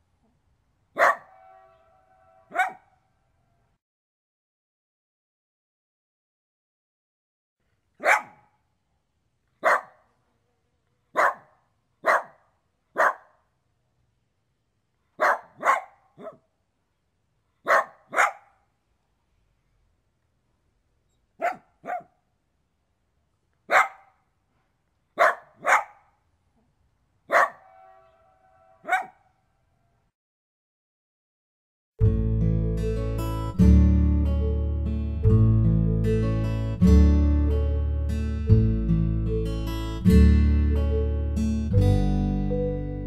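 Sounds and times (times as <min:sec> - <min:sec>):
dog barking: 0:01.0 - 0:03.0, 0:08.0 - 0:08.6, 0:09.6 - 0:10.1, 0:11.1 - 0:13.5, 0:15.2 - 0:16.5, 0:17.6 - 0:18.6, 0:21.4 - 0:22.2, 0:23.7 - 0:24.2, 0:25.2 - 0:26.2, 0:27.3 - 0:29.4.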